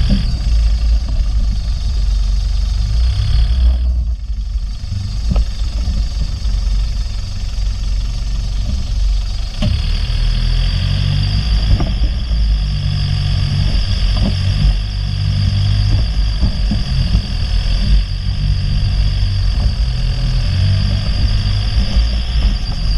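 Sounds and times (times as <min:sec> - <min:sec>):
off-road vehicle engine running: 0:00.0 - 0:22.9
vehicle knocking over bumps: 0:11.3 - 0:22.9.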